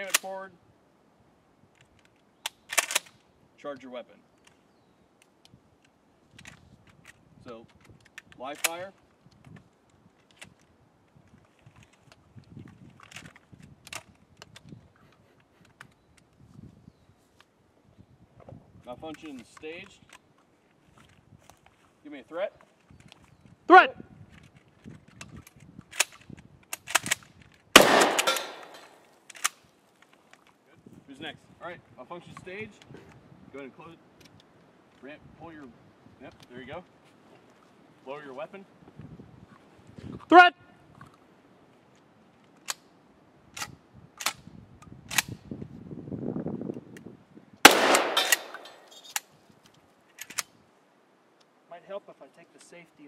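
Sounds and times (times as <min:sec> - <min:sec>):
shotgun action clacking: 0:02.5 - 0:03.2, 0:25.9 - 0:29.6, 0:47.7 - 0:49.3
shotgun blast echoing: 0:27.8 - 0:29.0, 0:47.6 - 0:48.9.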